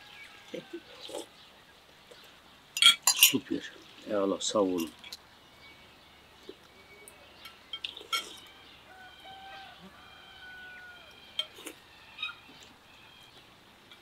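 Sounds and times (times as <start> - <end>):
rooster crowing: 0.0 - 1.0, 8.4 - 12.4
spoons clinking against bowls: 2.8 - 3.5, 7.4 - 8.5.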